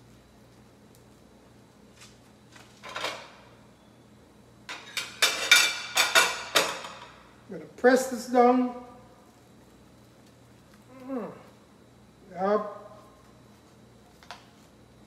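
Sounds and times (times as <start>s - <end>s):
kitchen utensils clattering: 4.7s - 7.2s.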